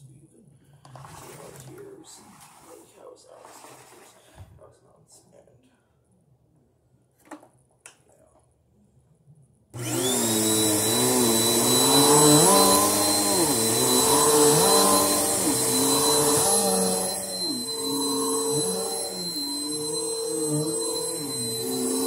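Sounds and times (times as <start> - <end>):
vacuum cleaner running: 9.8 - 22.0.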